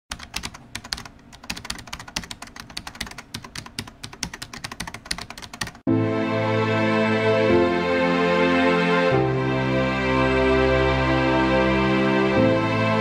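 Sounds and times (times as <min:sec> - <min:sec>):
keyboard typing: 0:00.1 - 0:05.9
music: 0:05.9 - 0:13.0.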